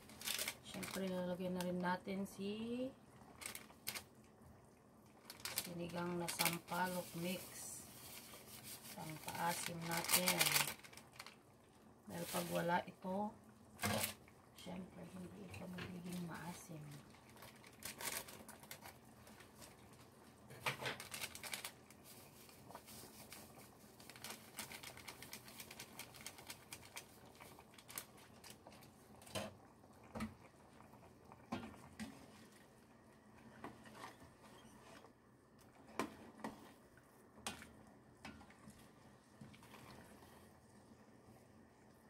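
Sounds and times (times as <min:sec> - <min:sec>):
broth bubbling and popping: 0:23.9 - 0:34.0.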